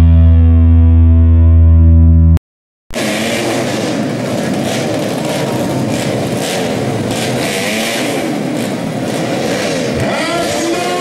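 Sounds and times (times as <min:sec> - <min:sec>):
motorcycles revving engines: 0:02.9 - 0:11.0.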